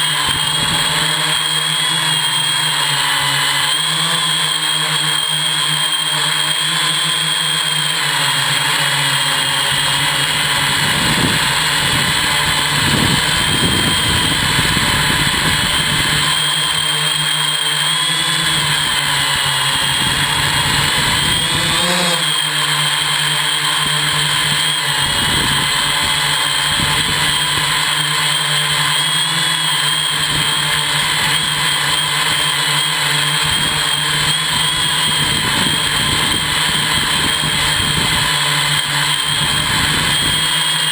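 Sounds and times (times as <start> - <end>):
drone propellers whining: 0.0 - 40.9
wind rumbling on microphone: 10.4 - 16.4, 19.8 - 22.3, 24.4 - 27.8, 33.4 - 38.3, 39.2 - 40.5.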